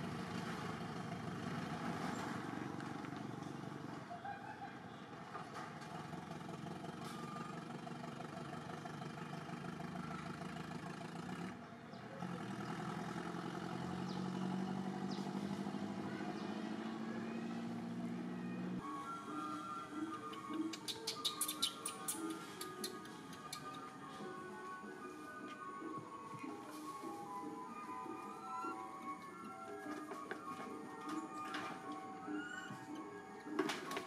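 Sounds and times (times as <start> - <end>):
engine running: 0.0 - 34.0.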